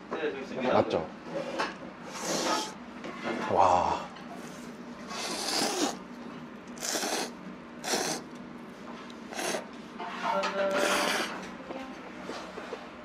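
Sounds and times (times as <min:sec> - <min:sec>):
person slurping noodles: 0:02.1 - 0:02.8, 0:05.1 - 0:06.0, 0:06.8 - 0:08.3, 0:09.3 - 0:09.7, 0:10.7 - 0:11.4.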